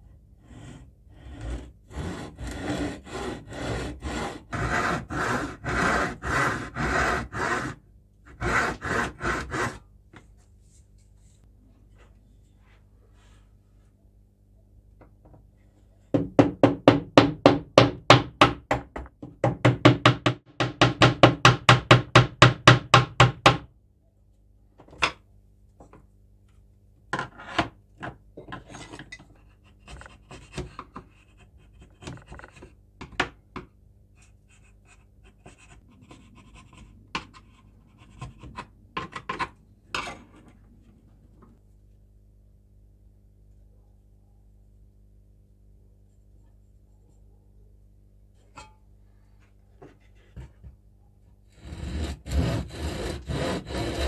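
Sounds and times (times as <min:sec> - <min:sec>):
file rasping on wood: 0:00.4 - 0:09.9, 0:51.5 - 0:54.0.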